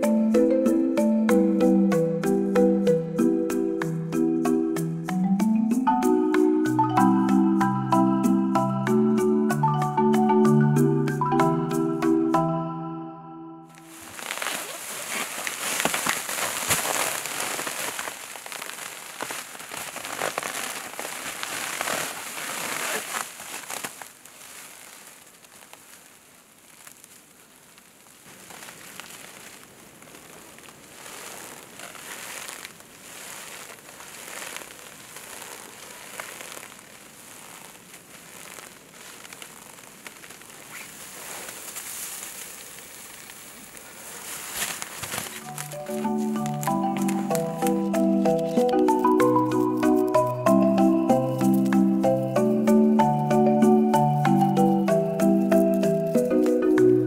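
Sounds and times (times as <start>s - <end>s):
plastic wrap rustling and crinkling: 13.7s - 57.0s.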